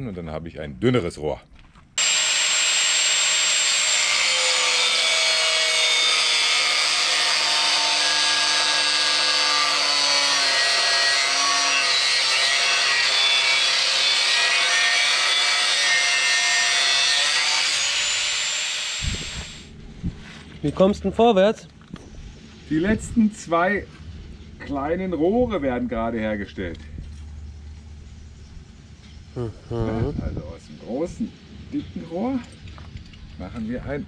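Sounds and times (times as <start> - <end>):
angle grinder cutting metal: 2.0 - 19.7.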